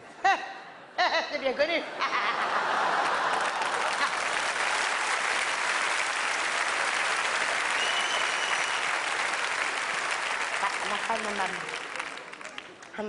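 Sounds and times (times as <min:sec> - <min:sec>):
audience applauding: 0:02.6 - 0:13.0.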